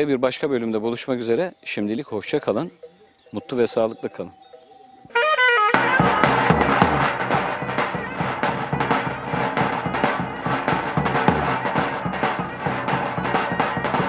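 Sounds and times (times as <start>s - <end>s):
clarinet melody: 4.5s - 8.4s
bass drum strokes: 5.8s - 14.0s.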